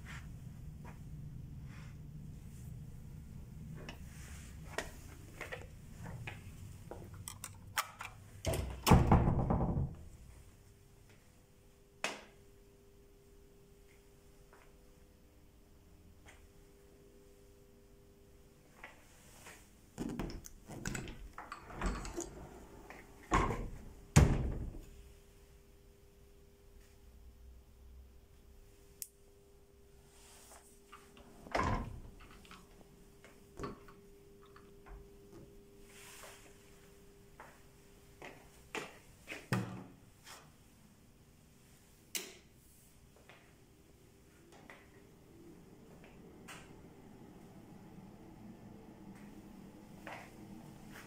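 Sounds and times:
wooden doors knocking and clunking: 8.5 - 10.1.

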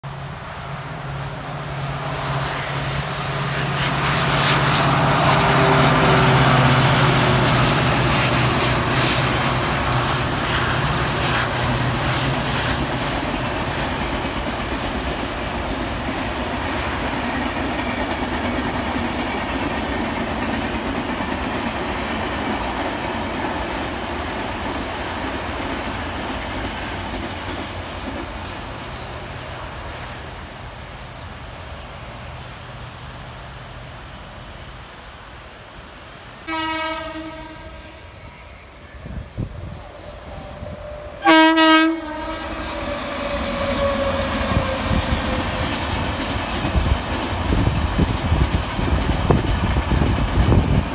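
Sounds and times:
train passing at speed: 0.0 - 50.9.

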